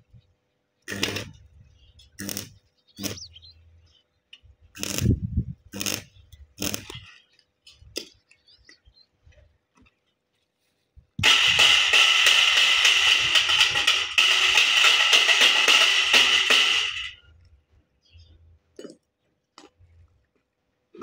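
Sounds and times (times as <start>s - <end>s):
metal knocks and scrapes: 11.2s - 17.2s.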